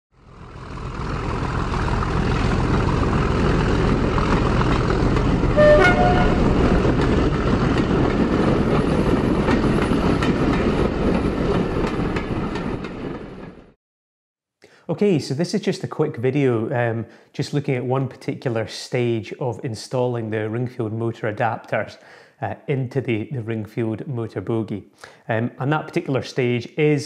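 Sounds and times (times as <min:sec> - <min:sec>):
train rumbling: 0:00.4 - 0:13.8
two-note train horn toot: 0:05.5 - 0:06.9.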